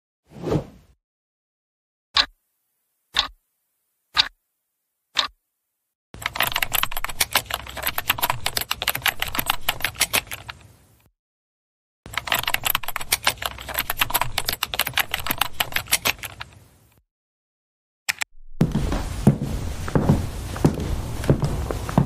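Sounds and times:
clock ticking: 0:02.2 - 0:02.4, 0:03.2 - 0:03.4, 0:04.2 - 0:04.4, 0:05.2 - 0:05.4
typing on laptop keyboard: 0:06.2 - 0:10.6, 0:12.1 - 0:16.5.

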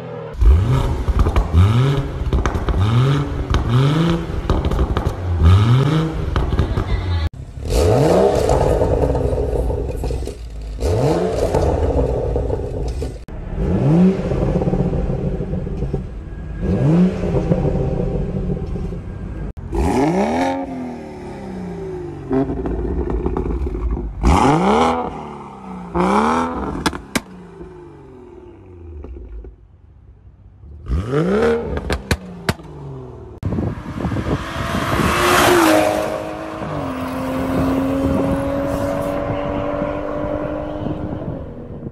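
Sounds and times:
car exhaust revving: 0:00.4 - 0:10.1, 0:30.7 - 0:41.9
exhaust pops and crackles: 0:00.8 - 0:05.4, 0:31.7 - 0:32.7
car accelerating hard: 0:33.4 - 0:41.9.

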